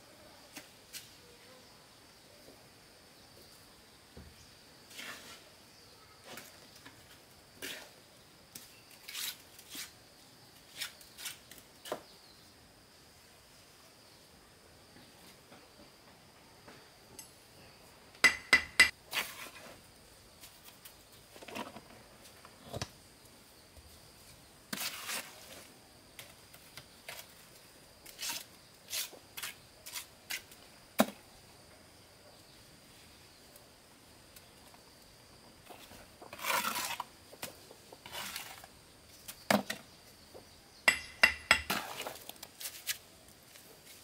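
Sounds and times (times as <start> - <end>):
trowel scraping concrete blocks: 8.9 - 10.0, 19.1 - 19.8, 24.7 - 25.6, 28.1 - 30.6, 35.7 - 38.7, 40.9 - 43.0.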